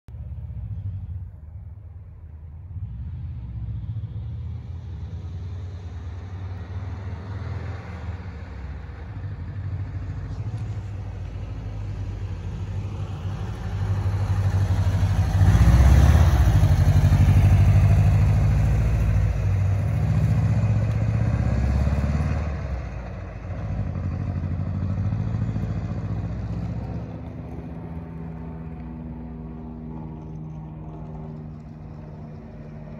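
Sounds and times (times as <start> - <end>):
engine idling and revving: 0.1 - 32.9.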